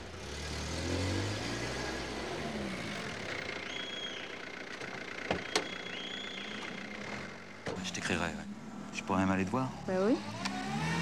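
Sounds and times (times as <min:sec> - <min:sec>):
low traffic rumble: 0:00.0 - 0:11.0
vehicle engine passing: 0:06.4 - 0:11.0.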